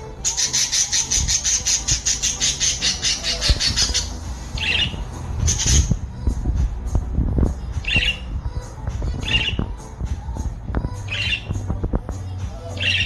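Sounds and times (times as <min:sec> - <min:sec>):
budgerigars chattering: 0:00.3 - 0:05.9.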